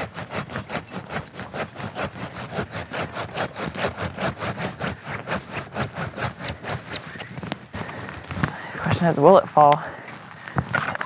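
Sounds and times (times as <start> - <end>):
hand saw cutting wood: 0.0 - 8.4.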